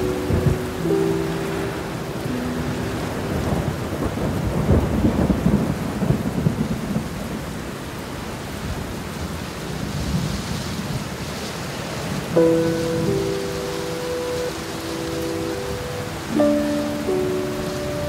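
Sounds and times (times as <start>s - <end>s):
rolling thunder: 0.0s - 7.6s
heavy rain: 0.0s - 18.0s.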